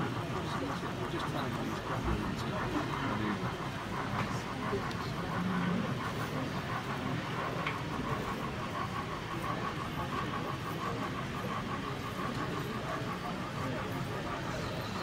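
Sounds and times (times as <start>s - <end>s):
exhibition hall background hum: 0.0s - 15.0s
model steam locomotive running: 0.0s - 15.0s.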